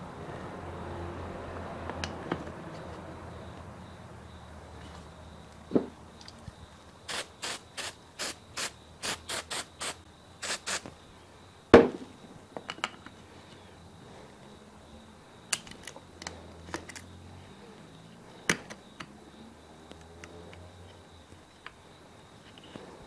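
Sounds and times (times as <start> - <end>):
knock: 11.8 - 12.0.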